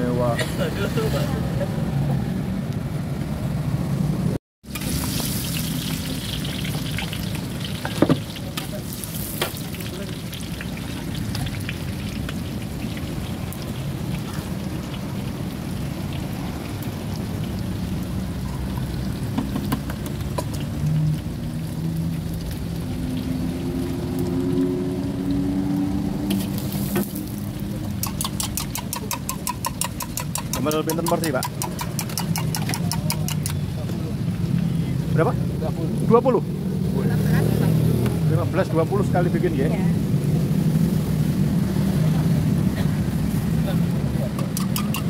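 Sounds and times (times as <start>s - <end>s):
rice sizzling in a wok: 4.6s - 23.4s, 26.3s - 33.5s
metal clank on wok: 28.0s - 33.6s, 44.3s - 45.0s
metal spatula scraping and clinking: 28.0s - 33.6s, 44.4s - 45.0s.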